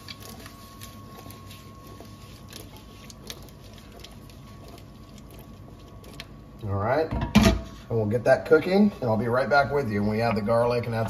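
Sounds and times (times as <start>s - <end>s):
small crackles and pops: 0.0s - 6.6s.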